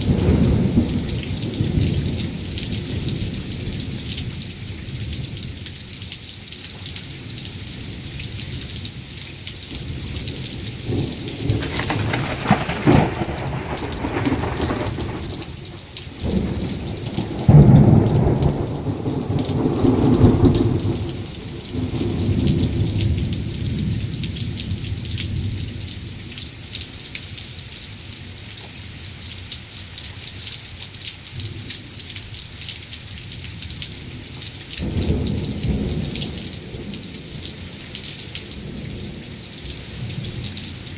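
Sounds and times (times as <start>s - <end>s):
thunder rumbling and clapping: 0.0s - 4.0s, 9.7s - 25.5s
heavy rain: 0.0s - 40.9s.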